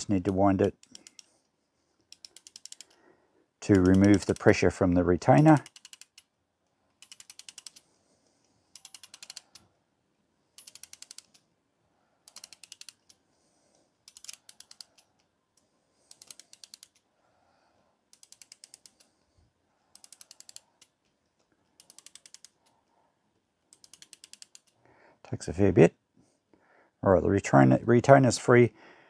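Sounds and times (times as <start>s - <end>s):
clock winding ratchet clicks: 0.1s - 1.3s, 2.0s - 3.0s, 3.6s - 7.9s, 8.7s - 9.7s, 10.6s - 11.5s, 12.2s - 13.2s, 14.0s - 15.3s, 16.1s - 17.1s, 18.1s - 19.2s, 19.9s - 22.8s, 23.7s - 24.8s.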